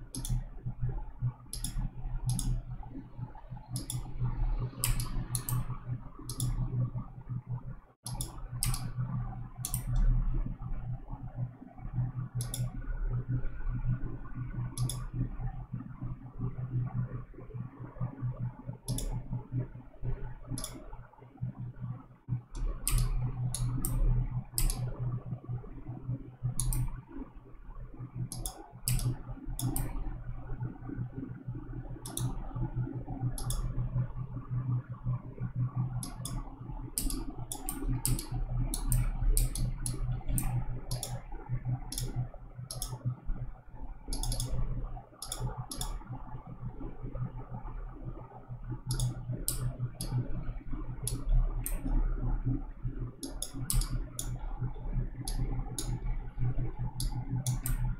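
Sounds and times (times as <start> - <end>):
computer mouse clicking: 0.0 - 0.7, 1.5 - 6.8, 8.0 - 10.2, 12.3 - 12.8, 14.5 - 15.3, 18.8 - 19.4, 20.5 - 21.0, 22.5 - 25.0, 26.4 - 27.0, 28.2 - 30.2, 31.9 - 34.0, 35.5 - 43.2, 44.0 - 46.2, 48.8 - 52.0, 53.1 - 57.9
low hum: 0.0 - 57.9.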